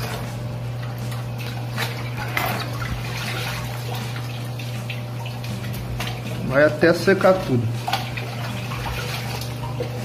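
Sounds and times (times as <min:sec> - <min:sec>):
small water splashes: 0:00.0 - 0:06.5, 0:07.4 - 0:10.0
cloth sloshing in shallow water: 0:00.0 - 0:06.6, 0:07.2 - 0:10.0
steady low hum: 0:00.0 - 0:10.0.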